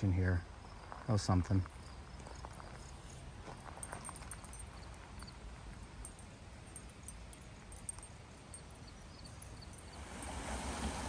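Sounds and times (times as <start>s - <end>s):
faint high chirps: 1.8s - 10.0s.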